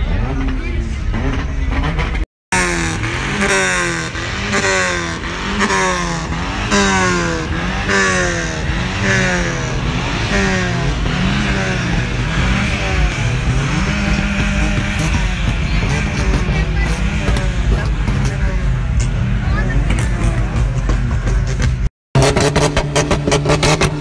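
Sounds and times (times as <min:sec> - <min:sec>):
car engine revving: 0:00.0 - 0:24.0.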